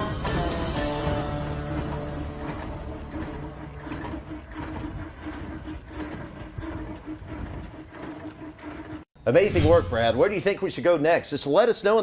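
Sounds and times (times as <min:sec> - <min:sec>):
steam engine chuffing: 0:00.0 - 0:09.1.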